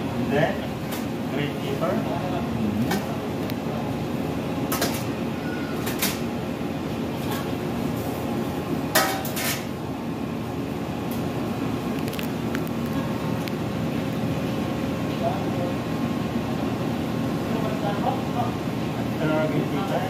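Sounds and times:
metal pans and bowl clanking: 0:04.7 - 0:05.1, 0:08.9 - 0:09.7.

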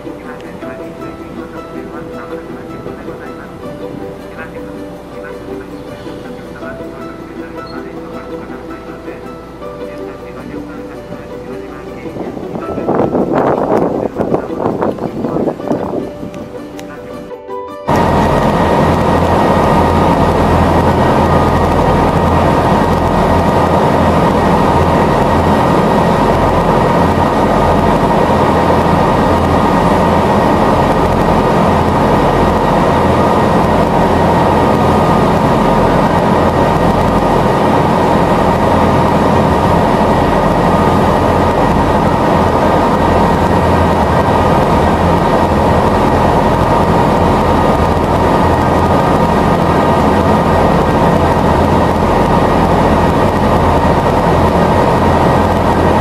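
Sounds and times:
boat engine hum: 0:00.0 - 0:56.0
high engine whine: 0:00.0 - 0:56.0
hull rushing through water: 0:17.9 - 0:56.0.

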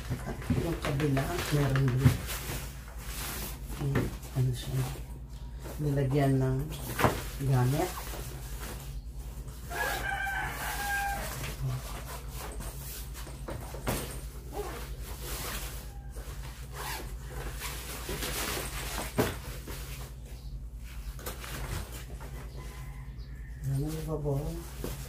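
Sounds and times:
rooster crowing: 0:09.6 - 0:11.9, 0:22.3 - 0:23.9
suitcase lining rustling: 0:09.7 - 0:20.1.

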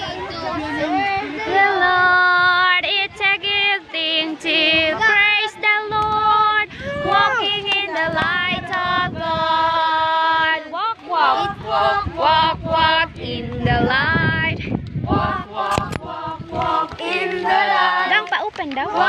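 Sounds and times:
group singing in unison: 0:01.4 - 0:19.0.

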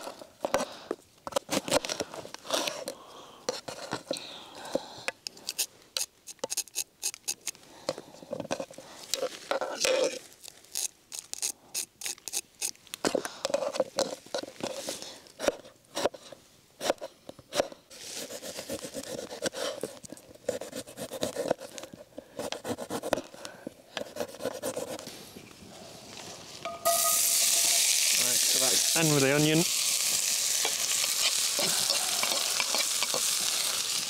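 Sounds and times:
food sizzling in hot oil: 0:26.8 - 0:34.0.

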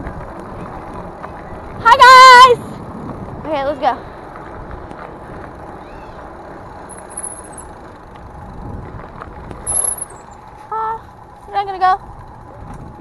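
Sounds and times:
bicycle tyre rumble on pavement: 0:00.0 - 0:13.0.

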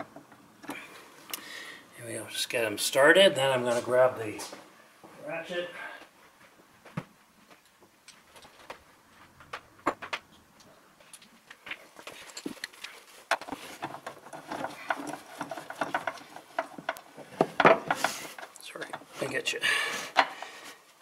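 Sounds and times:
tools clattering and rustling: 0:11.0 - 0:19.4.

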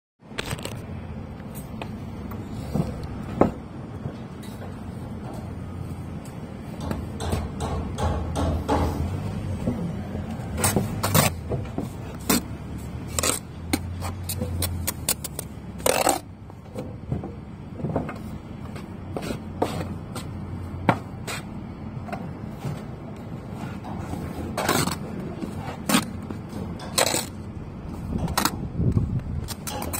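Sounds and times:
trowel scraping bricks: 0:10.5 - 0:16.3, 0:23.6 - 0:27.5.

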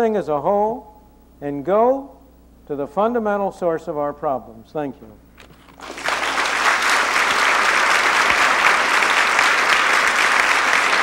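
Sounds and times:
audience applause: 0:05.8 - 0:11.0.

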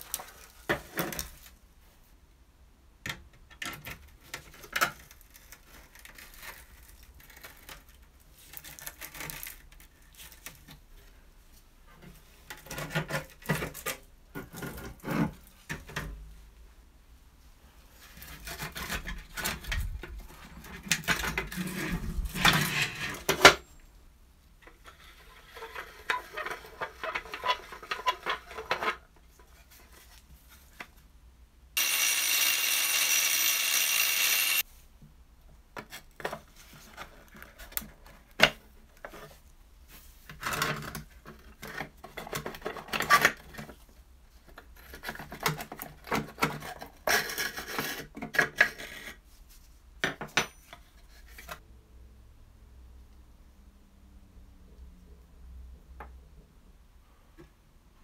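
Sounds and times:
small power tool running: 0:31.8 - 0:34.6.

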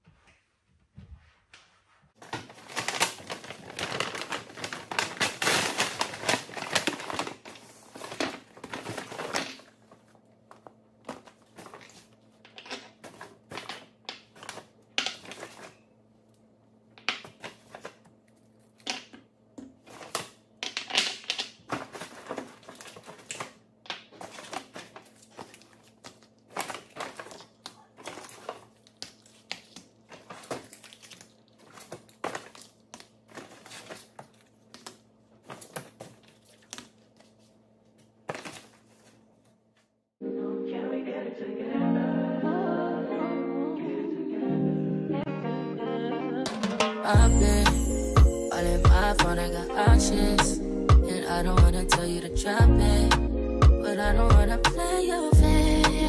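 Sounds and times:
plastic packaging crinkling: 0:02.2 - 0:15.8, 0:19.8 - 0:39.5
small items clicking and knocking: 0:18.7 - 0:36.9.

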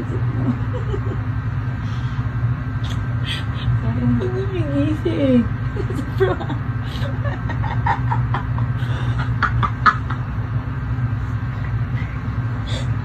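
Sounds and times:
laughter: 0:00.0 - 0:01.3, 0:05.7 - 0:10.4
steady low hum: 0:00.0 - 0:13.0
crying breaths: 0:08.6 - 0:09.4, 0:11.5 - 0:13.0.

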